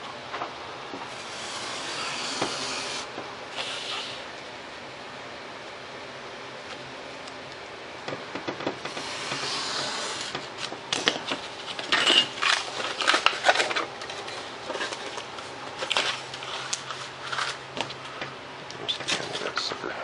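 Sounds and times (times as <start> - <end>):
foam board scraping: 1.1 - 4.2, 8.9 - 10.4.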